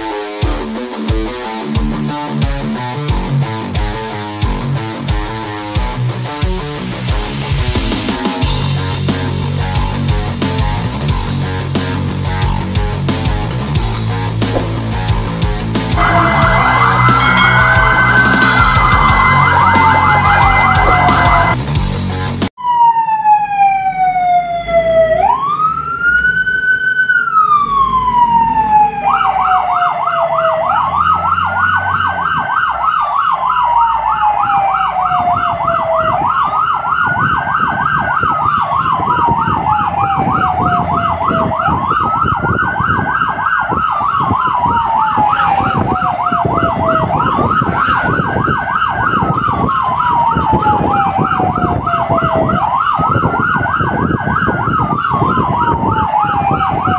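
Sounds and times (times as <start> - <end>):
siren wailing: 15.8 - 21.6, 22.6 - 56.9
rapid warbling siren yelp: 15.9 - 21.6, 22.6 - 56.9.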